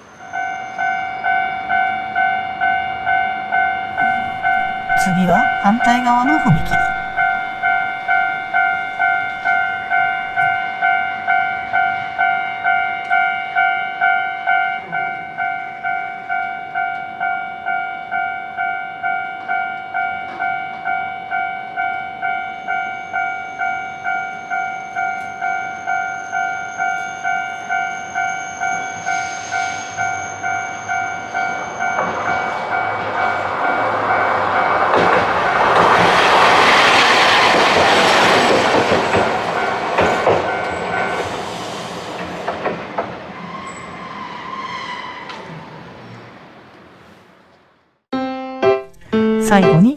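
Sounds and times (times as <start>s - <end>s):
level crossing bell ringing: 3.6s - 7.9s
streetcar rumbling past: 27.5s - 47.0s.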